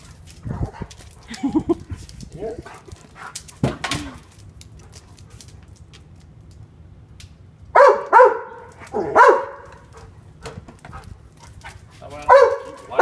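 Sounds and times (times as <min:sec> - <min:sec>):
dog barking: 0:07.8 - 0:09.9, 0:12.2 - 0:13.0.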